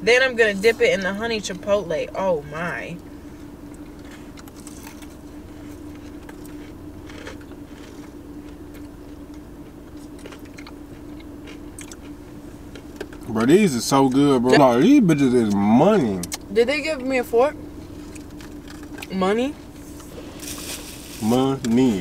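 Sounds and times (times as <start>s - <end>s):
car interior hum: 0.0s - 22.0s
chewing and crunching: 3.6s - 13.6s, 17.8s - 22.0s.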